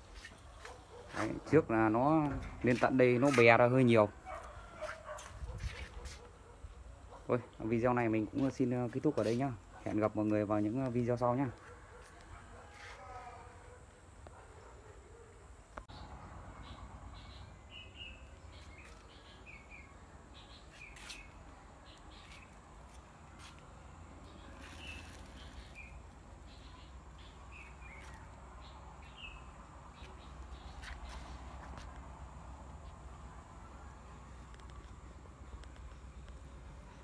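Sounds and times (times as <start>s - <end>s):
small birds chirping: 15.8s - 32.0s.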